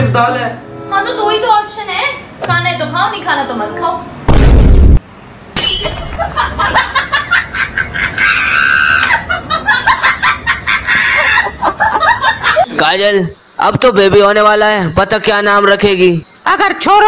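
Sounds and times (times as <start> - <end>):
loud burst of noise: 4.3 - 5.2
comic laughing sound effect: 6.2 - 12.7.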